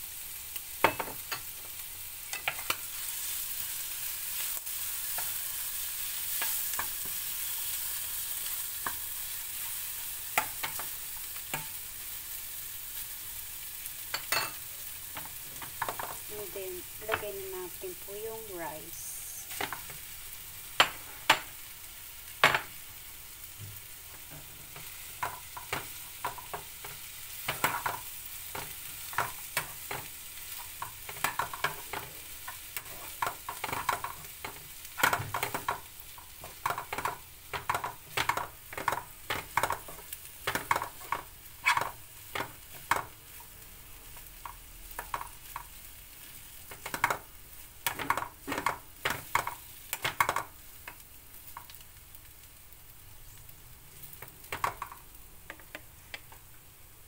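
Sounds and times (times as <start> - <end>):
frying sizzle: 0.0 - 57.0
spoon scraping a frying pan: 24.2 - 43.4.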